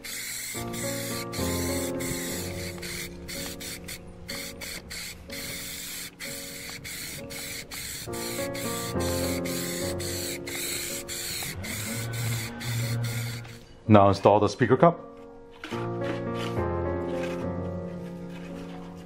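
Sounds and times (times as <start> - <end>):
aerosol spray can hissing: 0.0 - 13.6
background music: 0.0 - 19.0.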